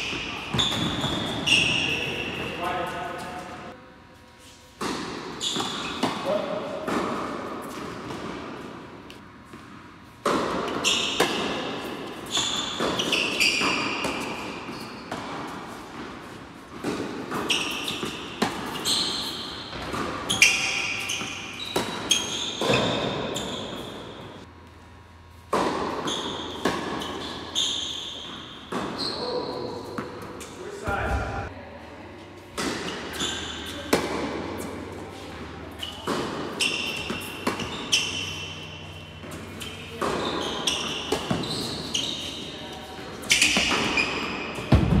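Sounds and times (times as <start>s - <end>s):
tennis ball bouncing: 4.8s - 24.4s, 25.5s - 27.4s, 32.6s - 35.0s, 35.6s - 42.4s, 43.2s - 45.0s.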